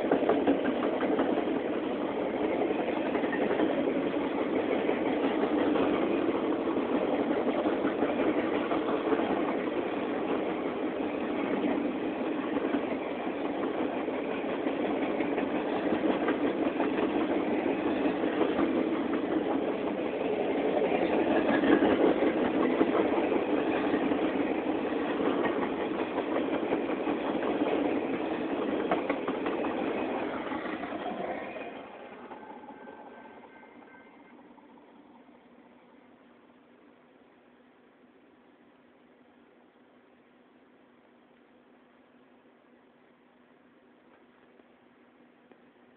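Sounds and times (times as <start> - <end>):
train wheels rolling on rails: 0.0 - 35.3.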